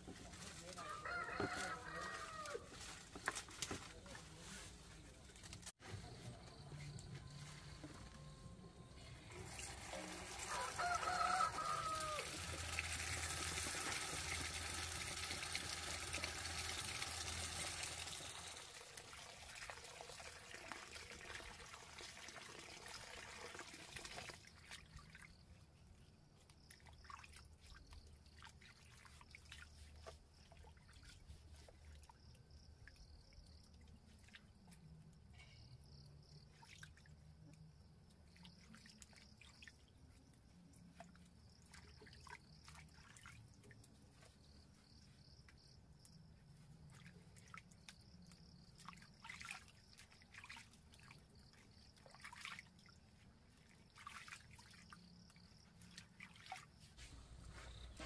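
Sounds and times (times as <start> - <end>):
water running and trickling: 9.3 - 26.0, 46.8 - 58.0.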